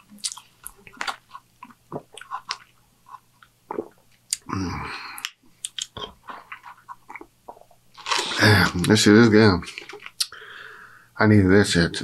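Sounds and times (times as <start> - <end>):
wet mouth clicks: 3.4 - 4.5, 5.2 - 7.8, 10.1 - 10.4.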